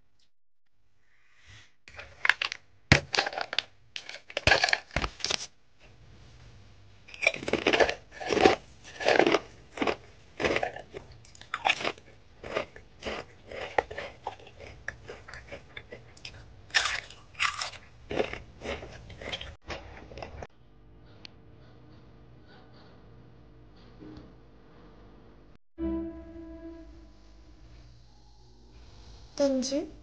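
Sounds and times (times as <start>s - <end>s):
crisps crunching while chewed: 1.9s - 5.5s, 7.1s - 20.4s.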